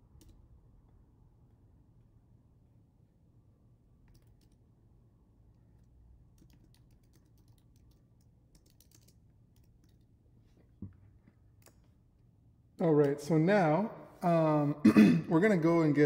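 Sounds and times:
faint keyboard typing: 0.1s - 0.4s, 4.0s - 4.7s, 5.5s - 12.0s.

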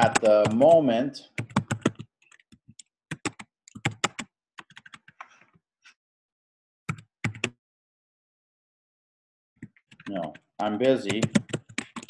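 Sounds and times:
typing on computer keyboard: 0.0s - 5.3s, 6.9s - 7.6s, 9.6s - 12.0s.

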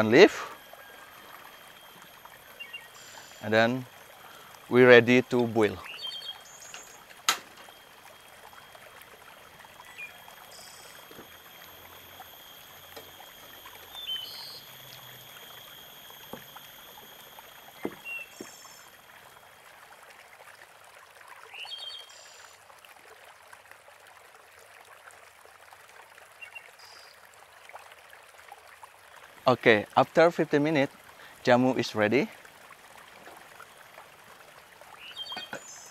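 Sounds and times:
high-pitched steady tones: 0.0s - 19.9s
outdoor background hiss: 0.0s - 35.9s.

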